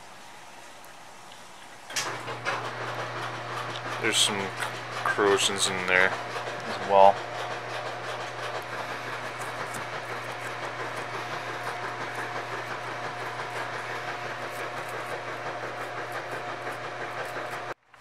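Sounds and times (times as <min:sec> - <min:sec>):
toothbrush scrubbing circuit board: 0:03.6 - 0:17.8.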